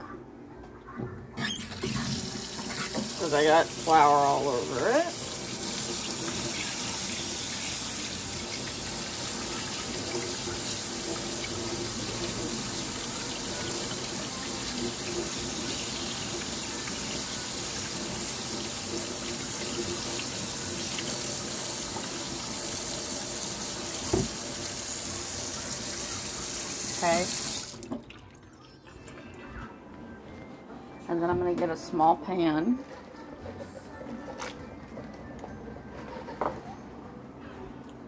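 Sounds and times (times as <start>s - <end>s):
faucet running into metal sink: 1.4s - 28.6s.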